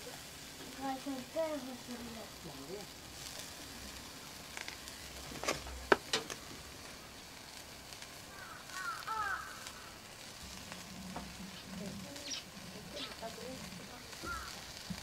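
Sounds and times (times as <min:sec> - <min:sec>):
food sizzling on a grill: 0:00.0 - 0:15.0
high chirping squeaks: 0:11.6 - 0:13.2.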